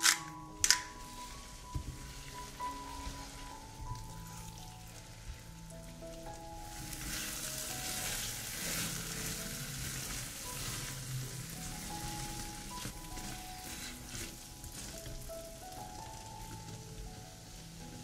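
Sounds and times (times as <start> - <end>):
soft background music: 0.0 - 18.0
food sizzling in a frying pan: 0.5 - 18.0
stirring scrapes: 6.9 - 15.2.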